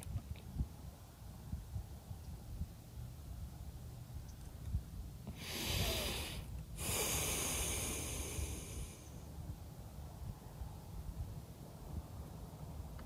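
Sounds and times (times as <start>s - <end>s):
person breathing: 5.3s - 9.3s.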